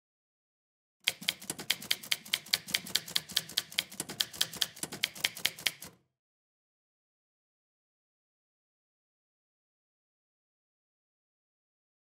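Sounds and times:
typewriter keys clicking: 1.1 - 6.0.

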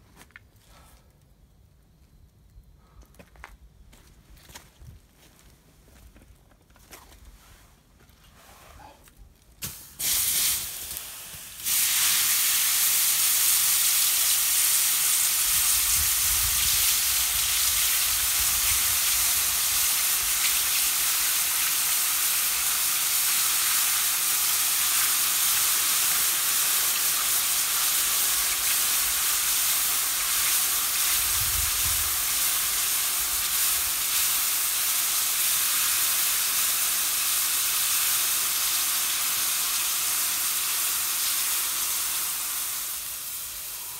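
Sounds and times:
molten metal sizzling hiss: 9.6 - 43.9.

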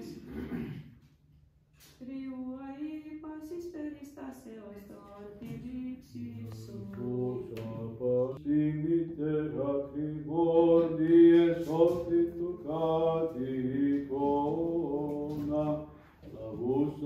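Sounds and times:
liturgical chant singing: 5.4 - 17.0.

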